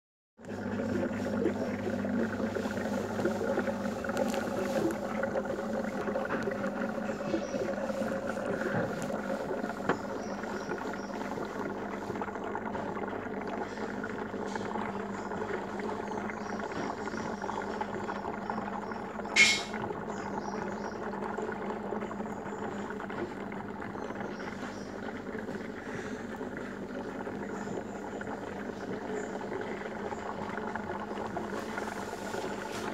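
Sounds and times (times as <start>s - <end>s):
aquarium air bubbling: 0.4s - 32.9s
sharp click: 19.4s - 19.7s.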